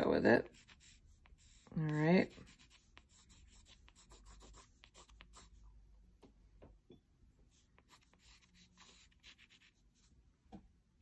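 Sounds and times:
pencil scratching on paper: 0.0s - 5.8s, 7.5s - 10.2s.

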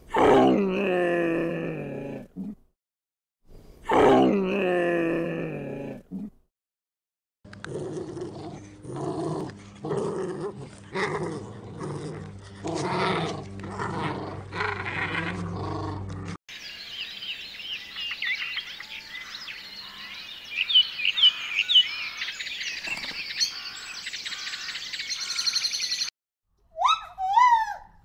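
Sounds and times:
puppies growling: 7.5s - 16.4s
bird trill: 16.5s - 26.1s
birds chirping and singing: 16.5s - 26.1s.

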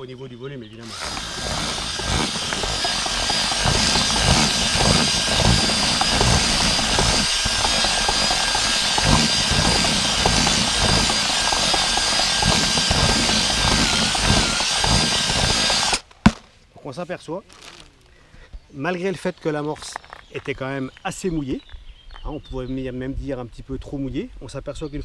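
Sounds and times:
drill motor whine: 0.8s - 16.0s
mix churning in plastic bucket: 0.8s - 16.0s.

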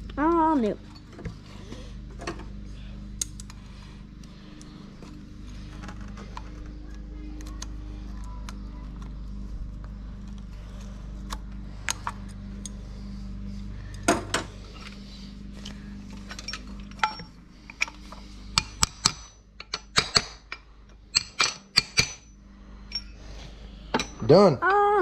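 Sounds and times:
hand tools clinking on steel: 16.2s - 22.3s, 22.9s - 23.2s, 23.9s - 24.4s.

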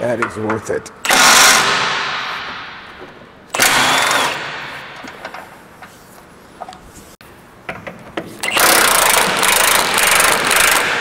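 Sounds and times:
power tool running: 3.5s - 4.7s, 8.4s - 11.0s.

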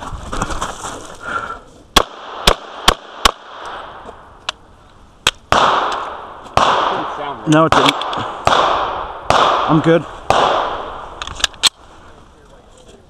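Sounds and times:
pistol shots: 2.0s - 4.0s, 5.4s - 11.7s.

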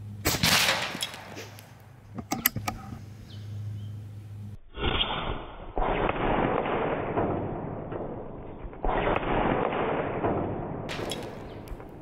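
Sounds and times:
air rifle shot: 0.2s - 1.6s, 5.0s - 12.0s.

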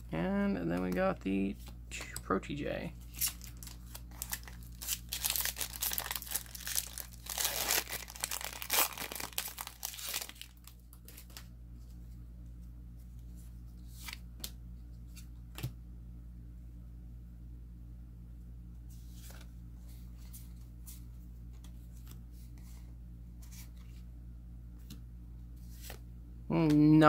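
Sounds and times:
foil wrapper tearing and crinkling: 3.1s - 10.7s.

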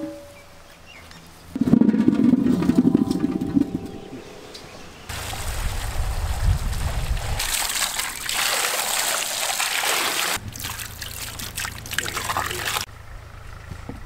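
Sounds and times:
water splashing over potatoes: 5.1s - 12.9s.

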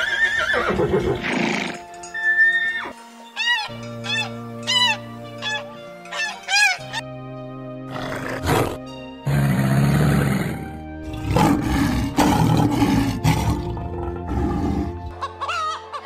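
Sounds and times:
background music: 0.0s - 16.0s
lion roaring: 7.9s - 15.1s
crocodile growling: 9.5s - 15.1s
hens clucking: 15.1s - 16.0s.

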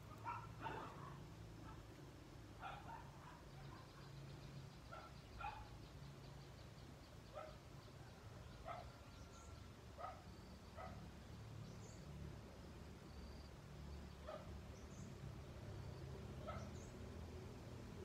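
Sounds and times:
faint dog barking: 0.0s - 2.0s, 2.6s - 5.8s, 7.3s - 7.7s, 8.5s - 11.1s, 14.2s - 14.6s, 16.4s - 16.9s.

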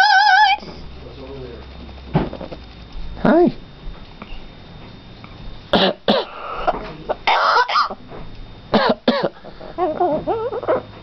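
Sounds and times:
parrot pitched call: 0.0s - 0.6s, 6.2s - 8.0s
parrot mimicking coughs: 5.7s - 6.7s, 7.3s - 8.0s, 8.7s - 9.4s.

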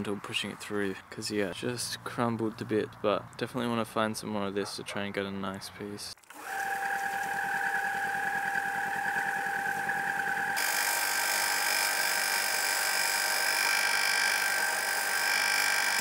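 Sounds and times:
sander motor whining: 6.3s - 16.0s.

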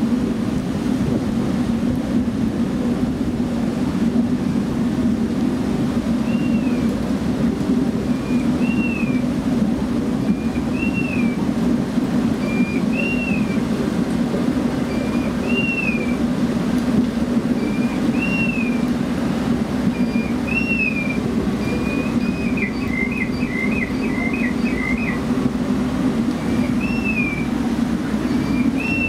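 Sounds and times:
fountain water rushing: 0.0s - 29.0s
bird calling: 6.2s - 6.9s, 8.1s - 9.3s, 10.3s - 11.4s, 12.4s - 13.7s, 14.8s - 16.2s, 17.5s - 18.9s, 19.9s - 25.3s, 26.3s - 29.0s.

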